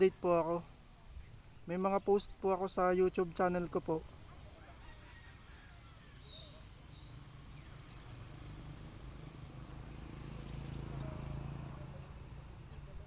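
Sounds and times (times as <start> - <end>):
faint bird chirps: 0.0 - 13.0
insect sounds: 0.0 - 13.0.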